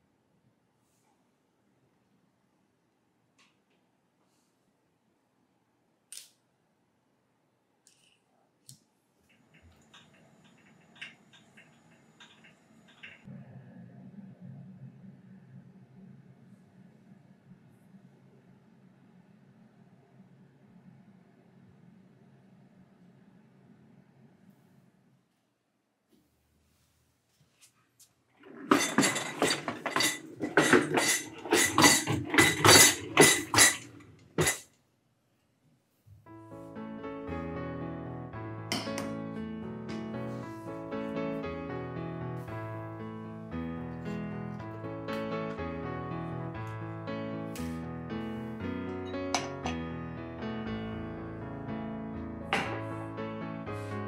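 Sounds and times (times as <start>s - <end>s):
kitchenware clinking and rattling: 28.4s - 34.7s.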